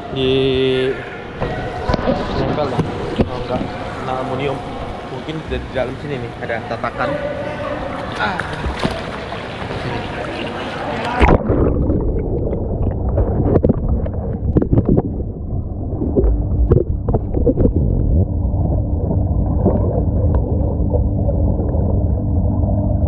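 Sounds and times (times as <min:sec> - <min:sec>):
muffled underwater rumble: 0:08.4 - 0:23.0
underwater clicks and bubbly pops: 0:11.0 - 0:15.2, 0:16.0 - 0:22.3.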